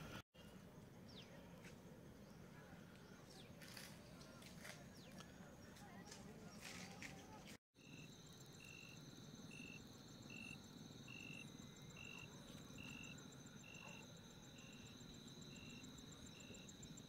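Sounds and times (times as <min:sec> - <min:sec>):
cricket chirping: 0:07.8 - 0:17.0.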